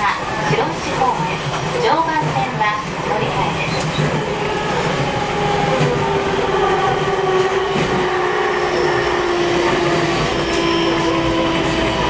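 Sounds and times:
train motor whine: 0:03.8 - 0:12.0.

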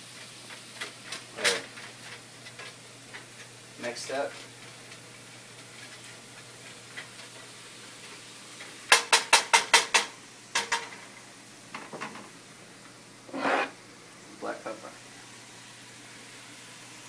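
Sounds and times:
sharp clacks at stove: 0:08.1 - 0:12.3.

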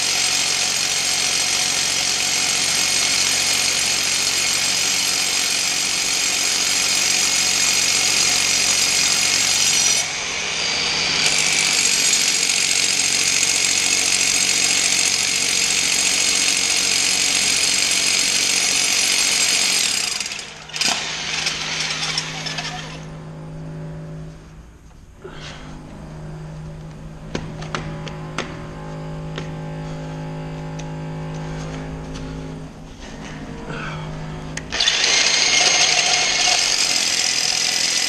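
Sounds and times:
power tool running: 0:00.0 - 0:24.3, 0:33.5 - 0:38.0
low hum: 0:20.6 - 0:36.7.

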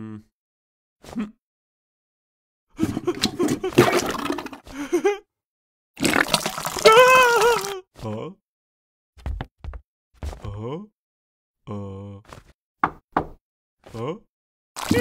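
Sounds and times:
man groaning and whimpering: 0:06.8 - 0:08.4, 0:10.4 - 0:10.9, 0:11.6 - 0:12.3
knocks on wooden door: 0:12.8 - 0:13.4.

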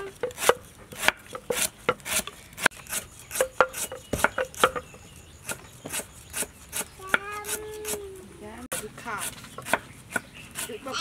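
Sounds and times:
knife chopping on wooden board: 0:00.2 - 0:04.8, 0:08.7 - 0:10.9
wooden pestle striking mortar: 0:03.3 - 0:04.9.

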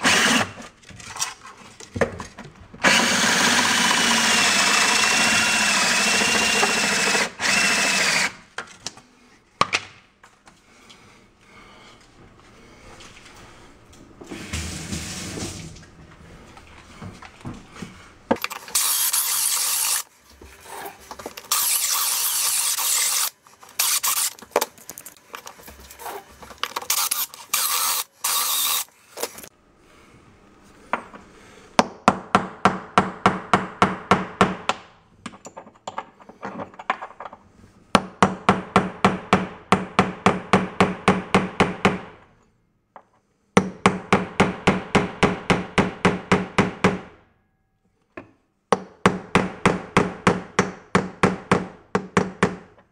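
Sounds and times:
grout saw scraping: 0:18.4 - 0:29.5.

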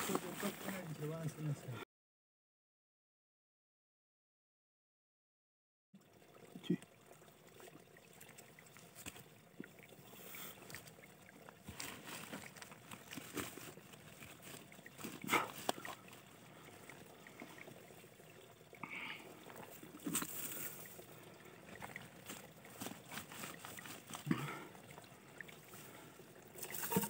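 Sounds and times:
sack rustling and scraping on soil: 0:00.0 - 0:01.0, 0:11.6 - 0:16.0, 0:20.0 - 0:20.9, 0:22.1 - 0:24.3, 0:26.6 - 0:27.0
trickle of running water: 0:00.0 - 0:01.8, 0:06.0 - 0:27.0.

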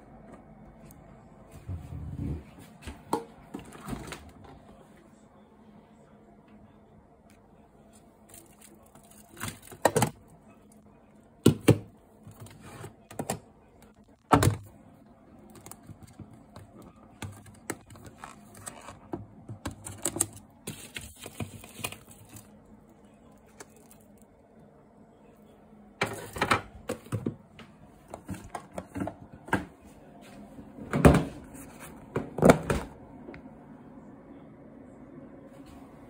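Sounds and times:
plastic containers knocking: 0:11.4 - 0:11.9.

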